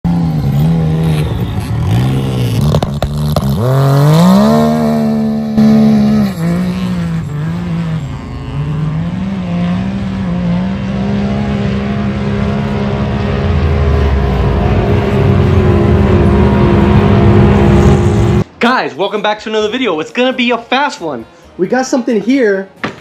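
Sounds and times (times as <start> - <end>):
engine revving hard: 0.1 - 18.4.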